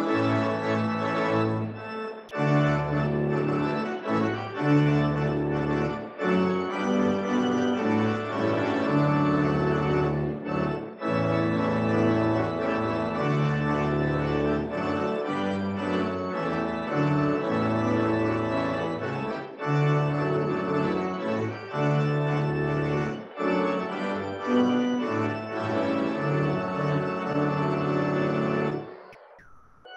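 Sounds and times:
pipe organ playing chords: 0:00.0 - 0:29.4.

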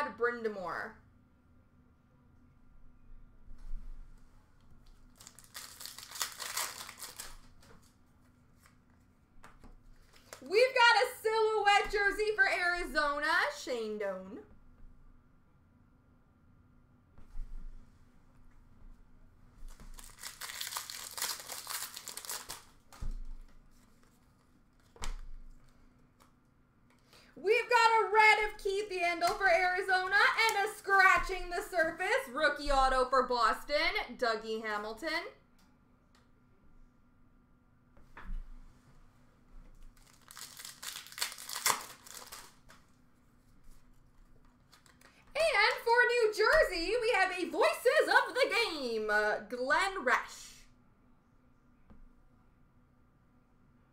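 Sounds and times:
card pack wrapper crinkling: 0:05.0 - 0:07.9, 0:19.7 - 0:23.2, 0:39.9 - 0:42.8, 0:44.5 - 0:45.2.

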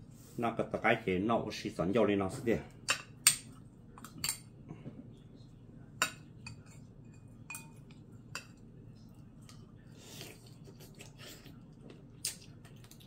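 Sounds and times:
metal spoon clinking on bowl: 0:06.0 - 0:08.6.

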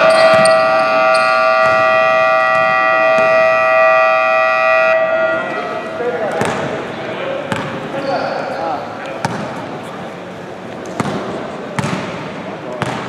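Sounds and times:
scoreboard buzzer blast: 0:00.0 - 0:06.0.

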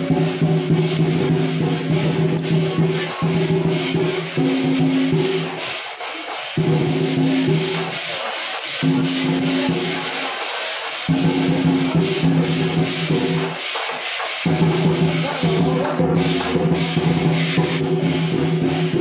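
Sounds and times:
cymbal clashes: 0:00.0 - 0:19.0
fast drum beat: 0:00.0 - 0:19.0.

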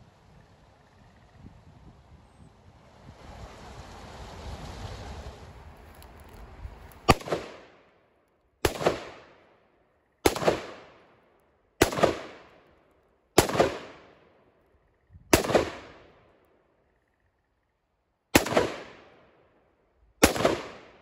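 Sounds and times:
rifle shots with echo: 0:07.1 - 0:07.9, 0:08.6 - 0:09.6, 0:10.2 - 0:11.2, 0:11.8 - 0:12.7, 0:13.4 - 0:14.4, 0:15.3 - 0:16.3, 0:18.3 - 0:19.3, 0:20.2 - 0:21.0.

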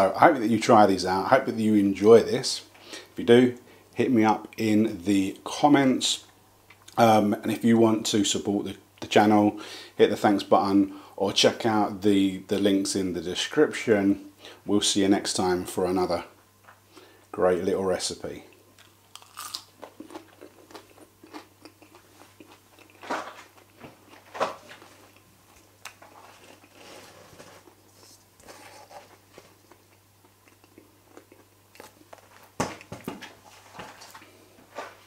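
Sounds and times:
person chewing crisp chip: 0:18.8 - 0:27.9, 0:28.5 - 0:32.5
knocks and handling sounds: 0:32.1 - 0:35.0.

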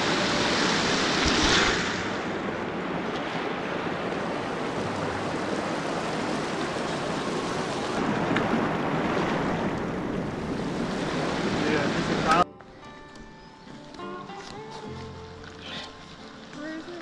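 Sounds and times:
creek rushing over rocks: 0:00.0 - 0:12.4.

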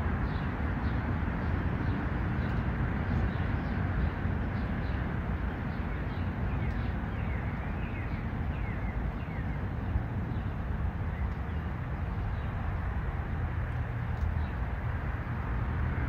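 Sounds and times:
steady low rumble: 0:00.0 - 0:16.0
small bird chirping: 0:05.7 - 0:11.7.

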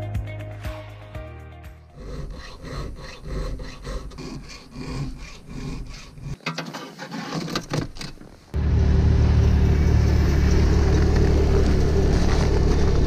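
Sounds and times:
hand file rasping: 0:02.0 - 0:06.4.

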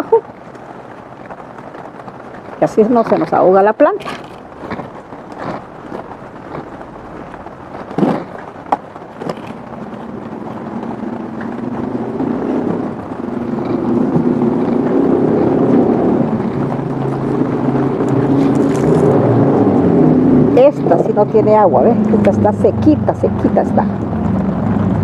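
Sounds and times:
vehicle engine droning: 0:04.6 - 0:25.0.

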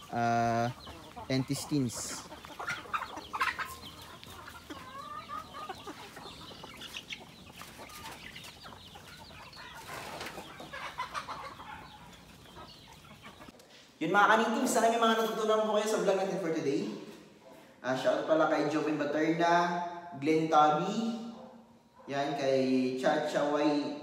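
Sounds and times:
chickens clucking: 0:00.0 - 0:19.1.

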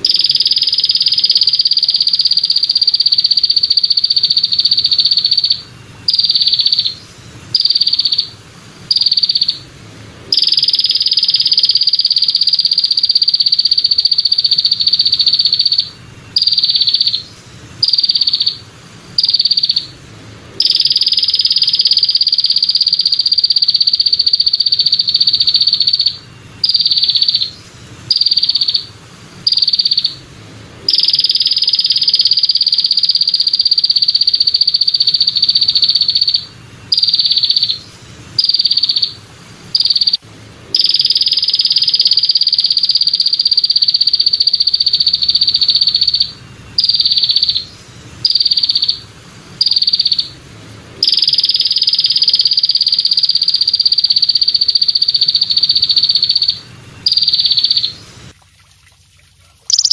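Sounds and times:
katydid high buzz: 0:00.0 - 0:58.2, 0:59.7 - 0:59.9.

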